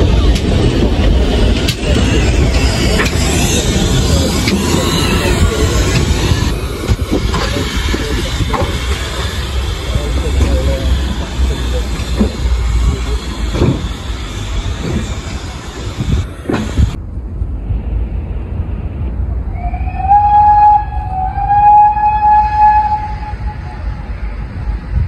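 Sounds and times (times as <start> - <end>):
wind buffeting microphone: 0.0 - 11.6, 12.2 - 25.0
low rumble: 0.0 - 25.0
steam locomotive whistle: 19.6 - 24.1.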